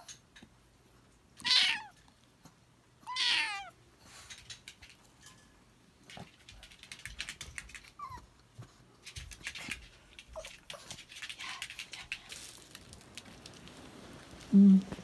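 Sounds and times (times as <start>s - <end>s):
kitten squeaky cries: 1.4s - 1.9s, 3.0s - 3.7s.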